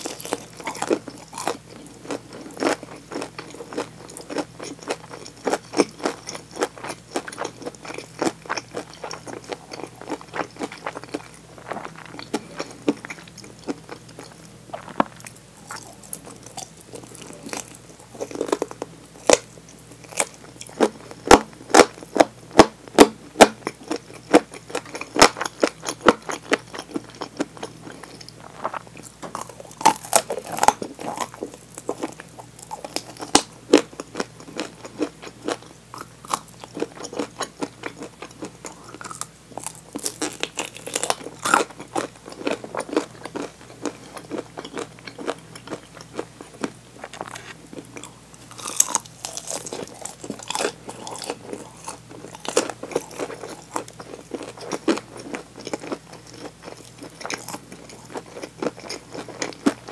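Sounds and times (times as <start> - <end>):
chewing: 0.0 - 22.3, 23.6 - 59.9
crunching fried chicken: 0.0 - 59.9.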